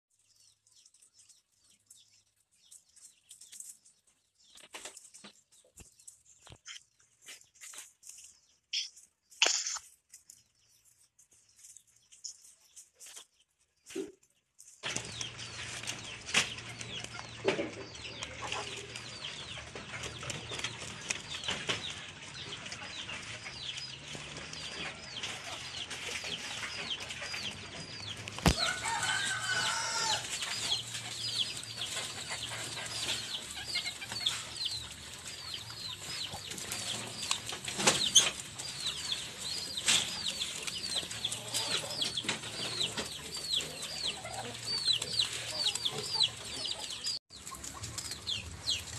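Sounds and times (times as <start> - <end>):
rabbits chewing leaves: 0.1 - 48.9
leaf rustling: 28.4 - 48.9.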